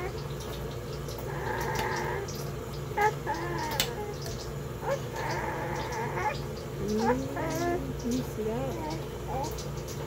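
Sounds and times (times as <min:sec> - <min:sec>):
steady low hum: 0:00.0 - 0:10.0
high-pitched wailing cries: 0:03.0 - 0:09.6.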